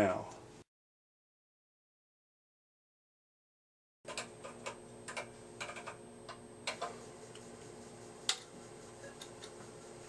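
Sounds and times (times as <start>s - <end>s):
steady low hum: 4.1s - 10.0s.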